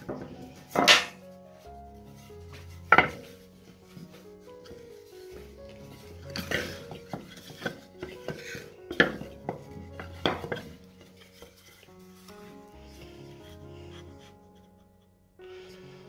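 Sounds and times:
wood pieces knocking together: 0:00.0 - 0:01.2, 0:06.3 - 0:10.8
quiet background music: 0:00.0 - 0:16.0.

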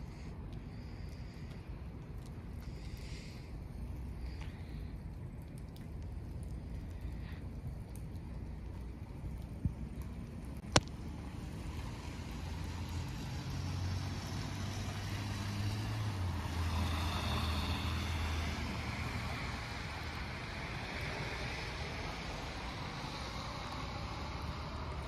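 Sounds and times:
vehicle passing by: 0:11.0 - 0:25.0.

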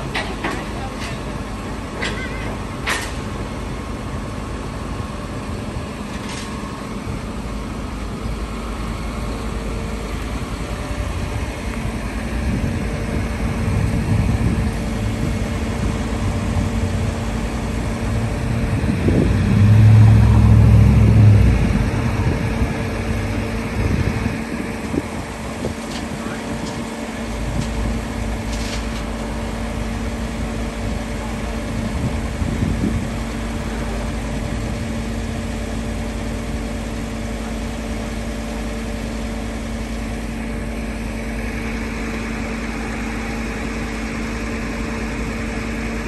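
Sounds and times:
city traffic noise: 0:00.0 - 0:46.0
truck engine running: 0:00.0 - 0:46.0
low rumble: 0:12.3 - 0:25.7.

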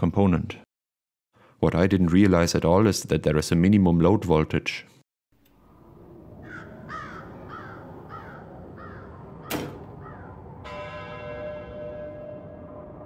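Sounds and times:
steady low rumble: 0:05.5 - 0:10.7
crows cawing: 0:06.4 - 0:10.6
long ringing tone: 0:09.8 - 0:13.0.

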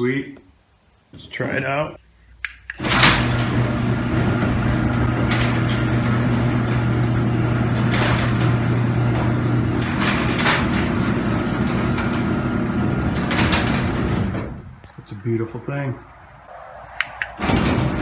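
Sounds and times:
garage door clacks: 0:02.7 - 0:14.8, 0:17.2 - 0:18.0
garage door opener humming: 0:02.8 - 0:14.7, 0:17.4 - 0:18.0.

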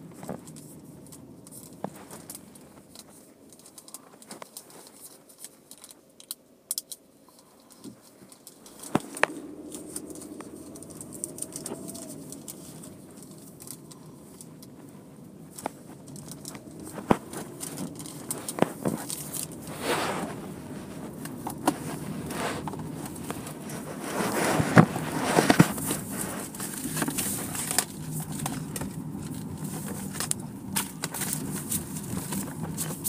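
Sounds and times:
car wash equipment rushing: 0:08.8 - 0:33.0.

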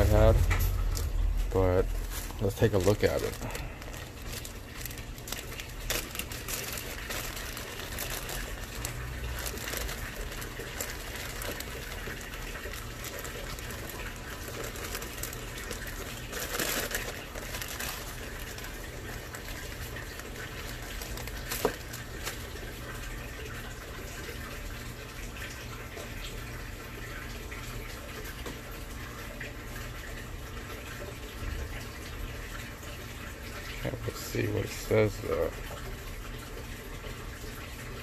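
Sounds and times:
plastic bag crinkling: 0:00.2 - 0:23.1.

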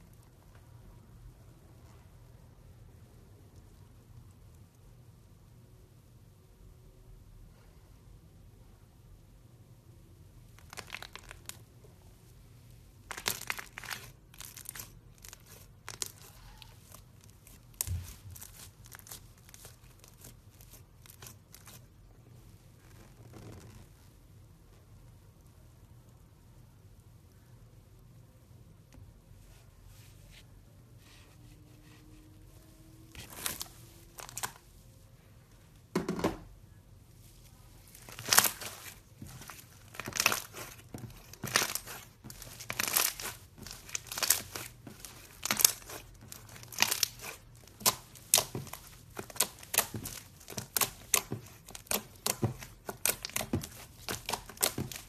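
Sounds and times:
sticky slime crackles and pops: 0:10.5 - 0:11.8, 0:13.0 - 0:21.9, 0:33.2 - 0:34.6, 0:37.9 - 0:55.0.

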